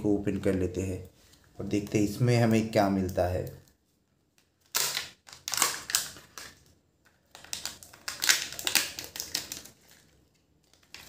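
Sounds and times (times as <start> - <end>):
seal pulled from plastic capsule: 4.6 - 6.7, 7.3 - 10.0
foil wrapper crinkling and tearing: 4.6 - 11.0.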